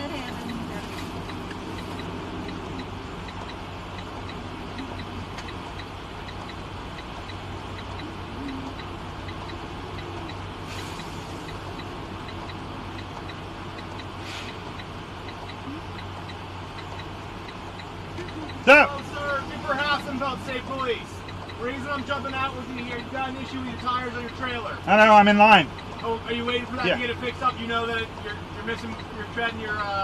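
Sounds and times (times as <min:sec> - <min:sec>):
faint regular tick: 0:00.0 - 0:19.2, 0:19.8 - 0:24.9
truck cab low hum: 0:00.0 - 0:30.0
short air hisses: 0:10.7 - 0:11.5, 0:14.2 - 0:14.6.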